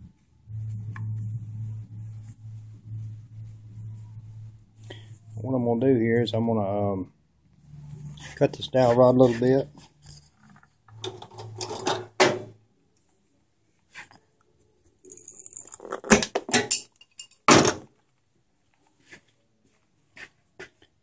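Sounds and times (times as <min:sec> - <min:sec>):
tools clinking and clattering: 0:10.9 - 0:12.5, 0:15.1 - 0:17.8.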